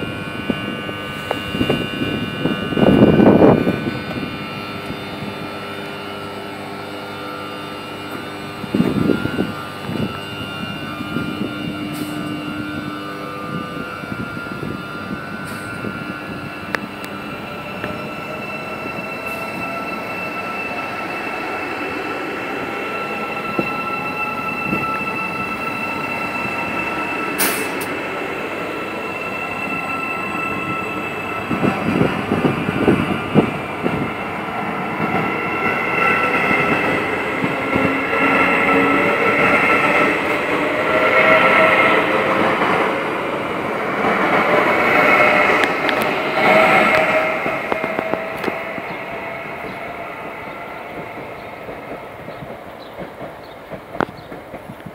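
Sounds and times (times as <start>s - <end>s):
high electric whine: 0.0s - 42.5s
train wheels on rails: 0.0s - 54.9s.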